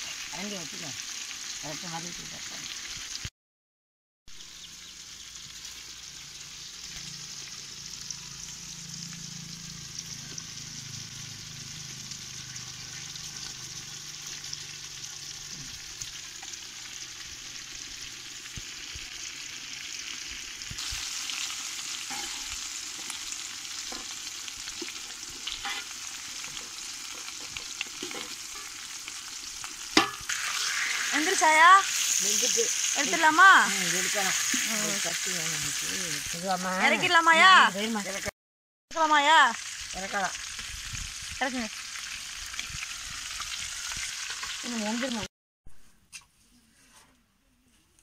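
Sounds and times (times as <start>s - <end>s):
fish sizzling in hot oil: 0.0s - 3.3s, 4.3s - 38.3s, 39.0s - 45.3s
knock on pan: 30.0s - 30.2s
metal ladle clinking on pan: 30.0s - 30.2s.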